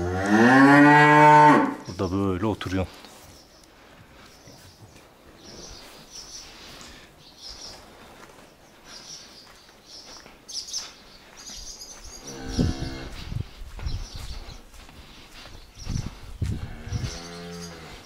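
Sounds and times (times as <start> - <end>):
cow mooing: 0.0 - 1.8
bird chirps: 3.2 - 13.1, 16.8 - 18.0.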